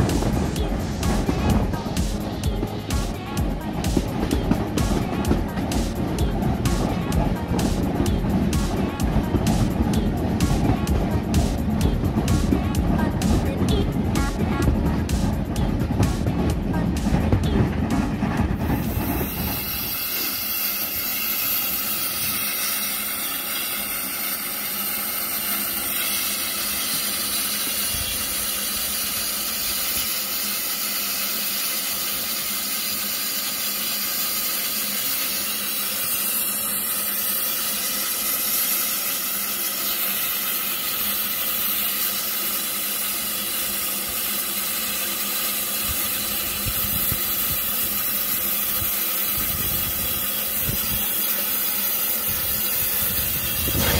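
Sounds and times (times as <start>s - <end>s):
steam locomotive hissing: 0.0s - 53.9s.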